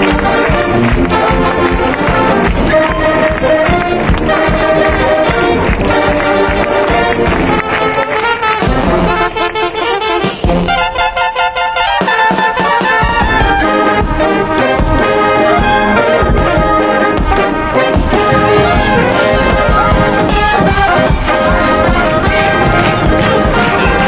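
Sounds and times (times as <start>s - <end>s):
drums: 0.0s - 24.0s
trumpets and trombones: 0.0s - 24.0s.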